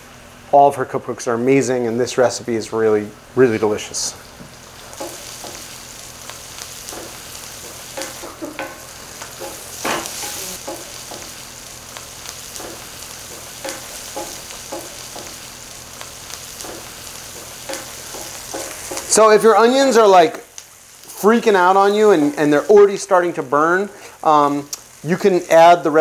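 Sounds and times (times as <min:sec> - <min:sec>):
onions sizzling in oil: 0:04.0 - 0:26.0.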